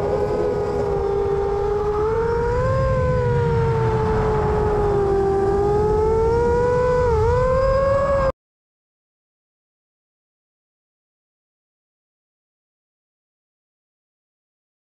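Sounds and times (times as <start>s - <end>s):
quadcopter motors whining: 0.0s - 8.3s.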